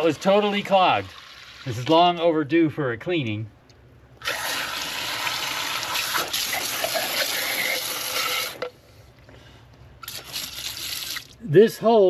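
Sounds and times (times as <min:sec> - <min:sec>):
hose nozzle spraying water: 0:04.2 - 0:08.6, 0:10.0 - 0:11.3.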